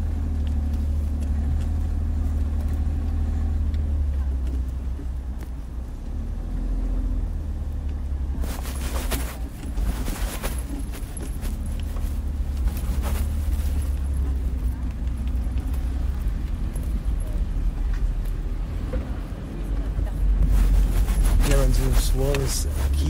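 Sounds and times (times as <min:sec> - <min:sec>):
irregular crackling noise: 0:07.8 - 0:17.0, 0:20.2 - 0:23.0.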